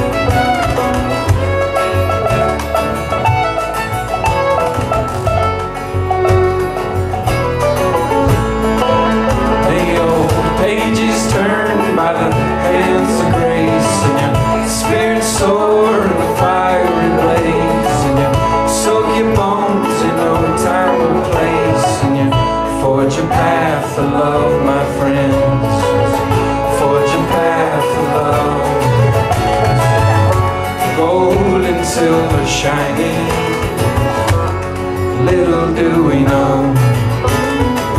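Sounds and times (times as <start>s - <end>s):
string melody with bending notes: 0.0s - 37.9s
strummed acoustic guitar: 0.0s - 37.9s
washboard rhythm: 0.0s - 37.9s.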